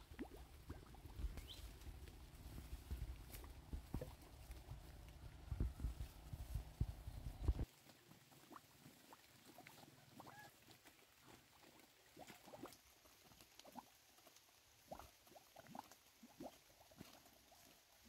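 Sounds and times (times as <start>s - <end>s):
netting rustling through dry leaves: 1.4s - 7.9s.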